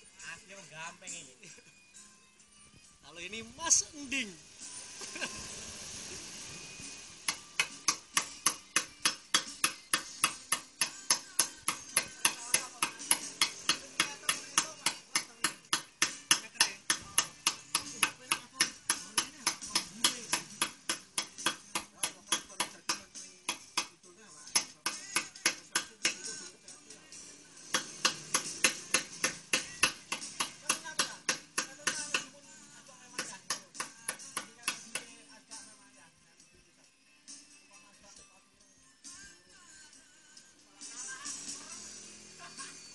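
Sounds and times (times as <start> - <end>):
hammer striking steel chisel: 7.2 - 26.4, 27.6 - 32.4, 33.1 - 35.1.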